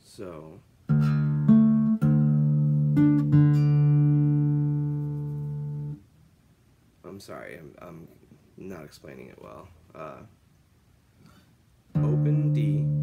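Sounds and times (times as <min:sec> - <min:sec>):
acoustic guitar notes picked: 0:00.9 - 0:06.0, 0:11.9 - 0:13.0.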